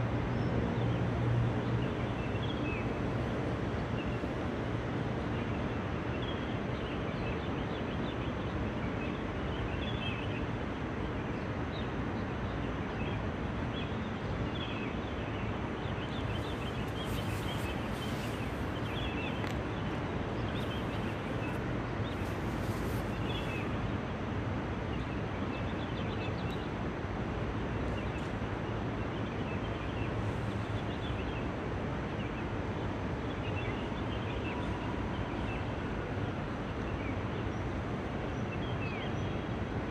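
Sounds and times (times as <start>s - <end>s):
low rumble of distant traffic: 0.0s - 39.9s
small birds chirping: 15.8s - 23.9s.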